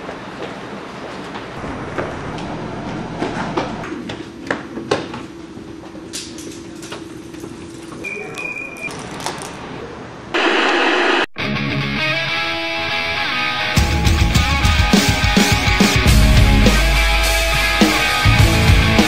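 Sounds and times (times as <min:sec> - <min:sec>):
hurried footsteps on hard floor: 0:01.3 - 0:04.7
steady low hum: 0:01.4 - 0:07.8
tv static hiss: 0:10.3 - 0:11.3.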